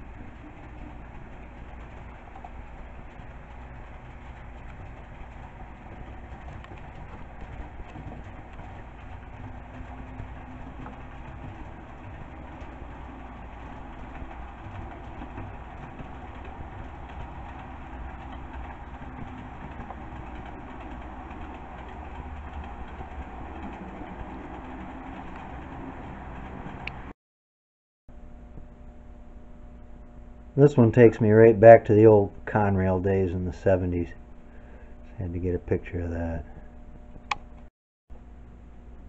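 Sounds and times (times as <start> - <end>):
small wheels rumbling on rail: 0.0 - 27.1.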